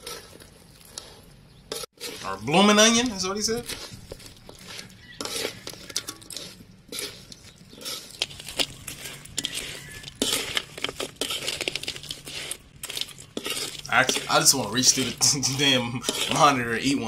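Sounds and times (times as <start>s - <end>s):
metal spoon scraping wok: 0.0s - 17.0s.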